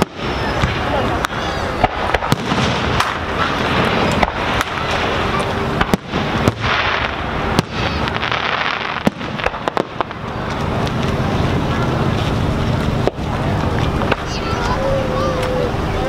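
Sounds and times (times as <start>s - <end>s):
firework shells bursting: 0.0s - 11.2s
continuous rush of noise: 0.0s - 16.0s.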